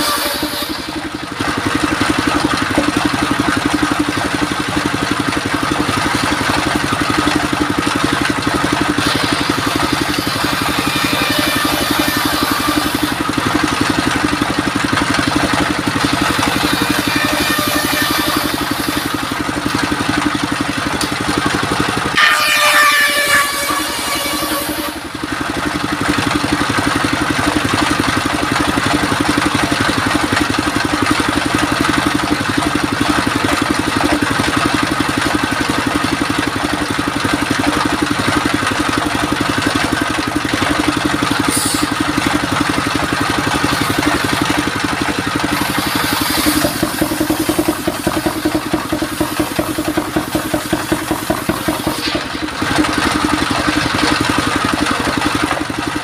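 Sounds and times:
stationary engine running: 0.0s - 56.0s
circular saw ripping boards: 49.4s - 54.2s.

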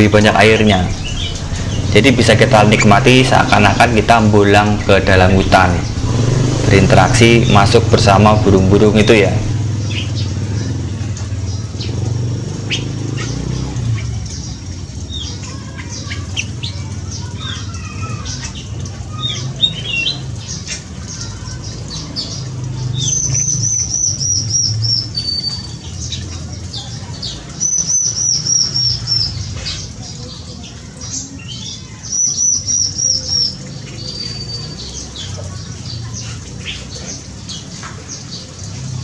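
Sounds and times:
steady low rumble: 0.0s - 9.5s
songbirds chirping: 0.0s - 39.0s.

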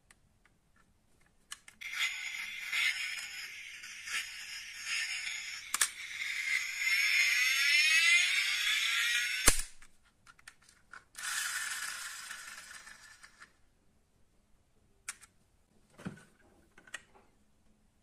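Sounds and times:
toy engine sound from speaker: 1.8s - 9.6s, 11.2s - 13.4s.

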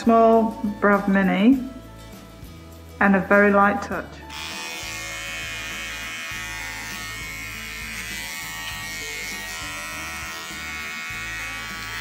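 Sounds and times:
pet trimmer running: 4.3s - 12.0s.

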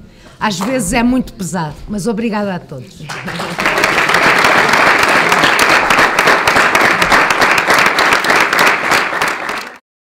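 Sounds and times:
audience applauding: 3.0s - 9.8s.

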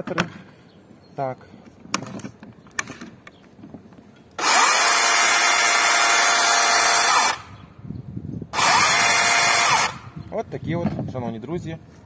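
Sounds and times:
electric chainsaw running: 4.4s - 7.5s, 8.6s - 10.2s.

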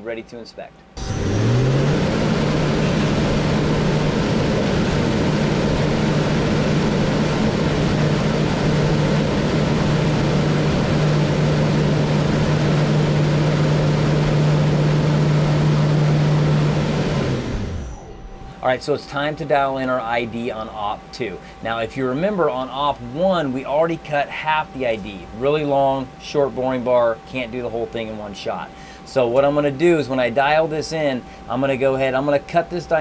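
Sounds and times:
lathe spindle humming: 1.0s - 18.6s.

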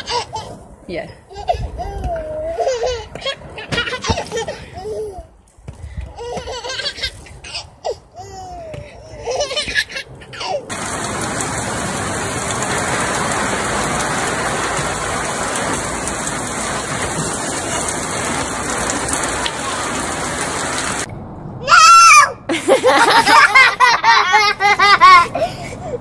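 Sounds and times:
steady rain falling: 10.7s - 21.1s.

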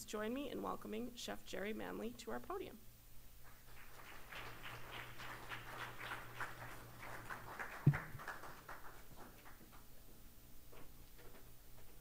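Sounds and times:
audience applauding: 3.5s - 9.8s.

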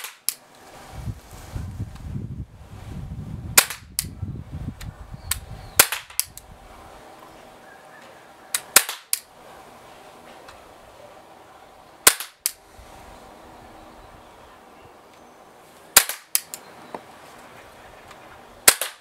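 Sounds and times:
low rumble: 0.7s - 7.8s
pellet pistol firing pops: 3.6s - 4.1s, 5.3s - 6.4s, 8.5s - 9.3s, 12.1s - 12.6s, 16.0s - 16.6s, 18.6s - 19.0s.

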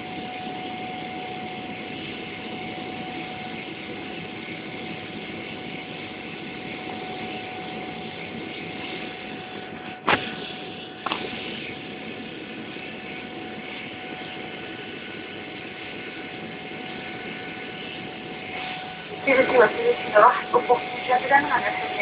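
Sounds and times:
jet engine and airflow rush: 0.0s - 22.0s
thin steady whine: 0.0s - 22.0s.

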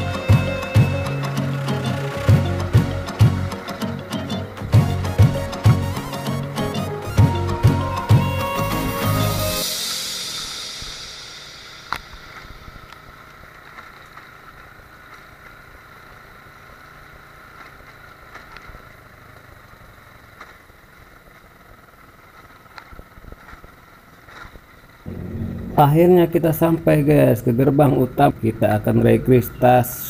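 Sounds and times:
motorcycle engine and road noise: 12.4s - 26.8s.

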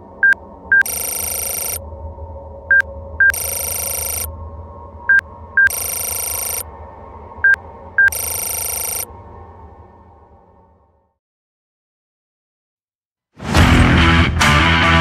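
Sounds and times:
low steady drone: 0.0s - 11.2s
short high beeps: 0.2s - 1.8s, 2.7s - 4.3s, 5.1s - 6.6s, 8.0s - 9.1s
buzzy data static: 0.7s - 1.8s, 2.7s - 4.3s, 5.6s - 6.6s, 8.0s - 9.1s.

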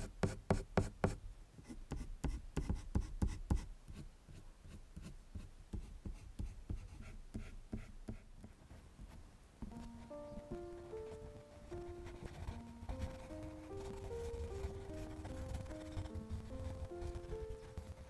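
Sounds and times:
pencil scratching on paper: 5.7s - 8.8s, 9.7s - 18.0s.

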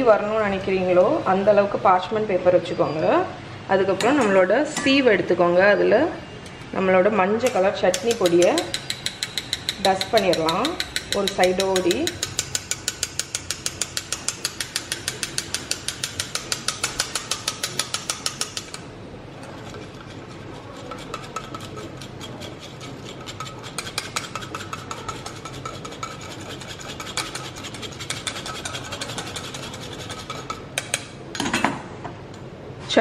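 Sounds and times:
spoon scraping a mesh strainer: 7.4s - 31.1s.

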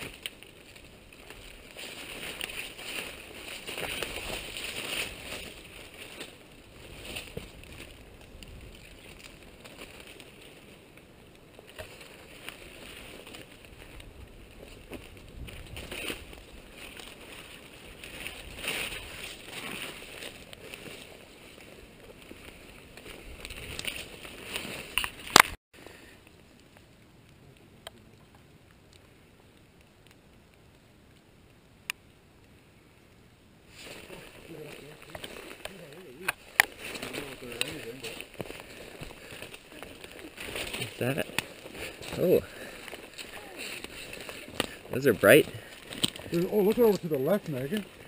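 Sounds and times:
footsteps crunching through undergrowth: 0.0s - 25.6s, 33.7s - 48.0s
twigs snapping: 0.0s - 25.6s, 33.8s - 48.0s
small irregular clicks: 22.2s - 32.1s, 34.9s - 48.0s.

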